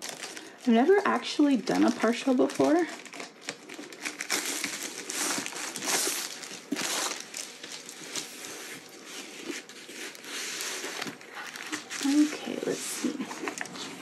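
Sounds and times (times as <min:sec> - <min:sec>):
plastic sleeve crinkling: 0:00.0 - 0:14.0
small plastic crackles: 0:00.0 - 0:14.0.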